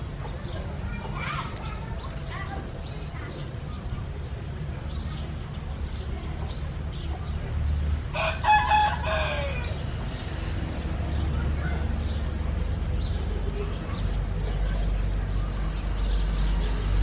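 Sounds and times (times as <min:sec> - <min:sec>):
rooster crowing: 0:08.1 - 0:09.7.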